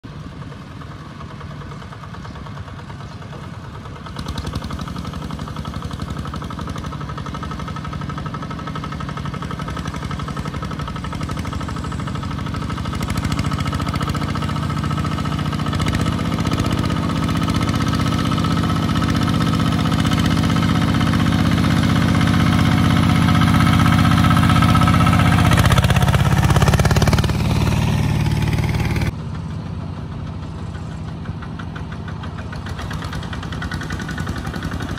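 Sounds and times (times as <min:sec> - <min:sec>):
diesel tractor engine chugging: 0:00.0 - 0:34.9.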